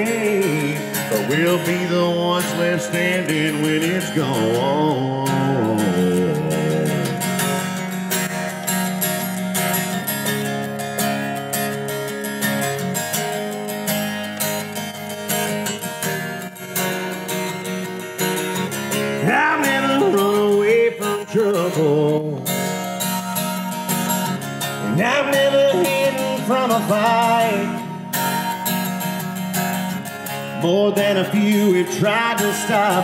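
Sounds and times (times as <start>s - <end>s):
person singing: 0.0s - 7.8s, 19.2s - 22.6s, 24.8s - 28.6s, 30.6s - 33.0s
acoustic guitar strumming: 0.0s - 33.0s.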